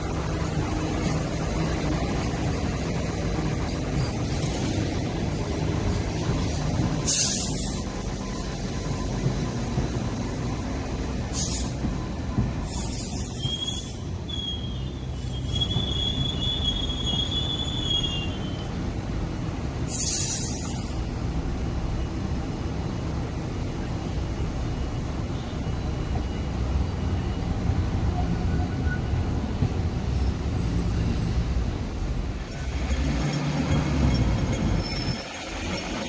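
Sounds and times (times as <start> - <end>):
train rumbling over track: 0.0 - 36.0
steel wheels squealing: 0.5 - 18.8, 24.4 - 30.4, 32.4 - 36.0.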